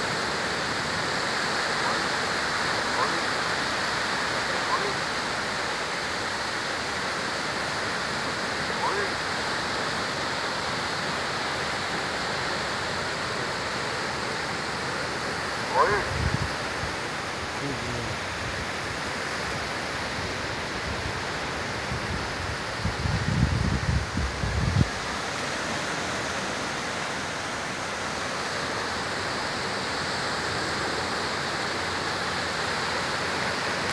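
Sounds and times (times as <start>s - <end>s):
small waves breaking on shore: 0.0s - 33.9s
wind rumble on microphone: 15.8s - 17.0s, 20.1s - 25.1s.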